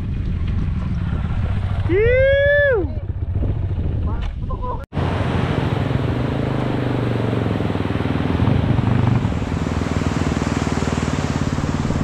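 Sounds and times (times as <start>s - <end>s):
small motorcycle engine running: 5.4s - 12.0s.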